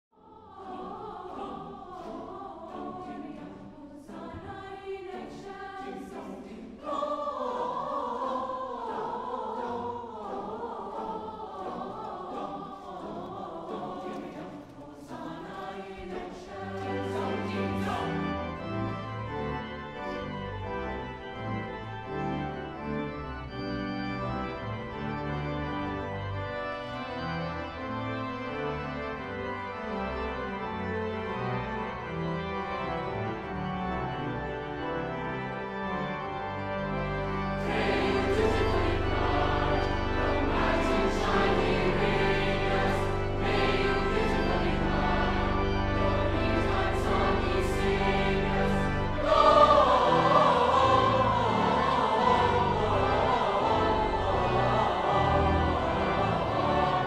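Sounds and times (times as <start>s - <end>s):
choir singing: 0.1s - 57.0s
organ playing held chords: 16.5s - 57.0s.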